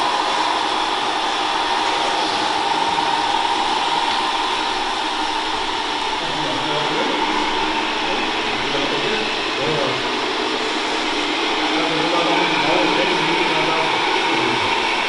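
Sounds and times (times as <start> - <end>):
electric motor and gear whine: 0.0 - 15.0
faint voices: 0.0 - 15.0
noisy background: 0.0 - 15.0.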